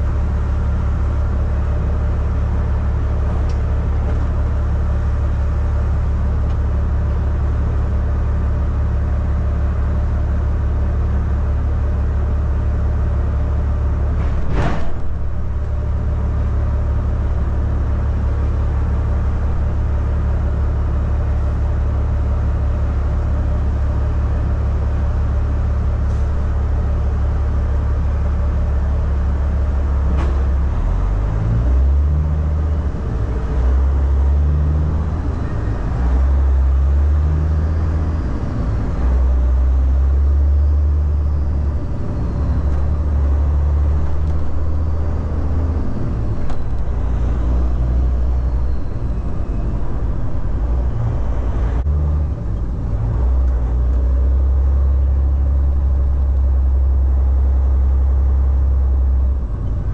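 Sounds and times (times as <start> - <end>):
truck diesel engine shifting gears: 0.0 - 59.9.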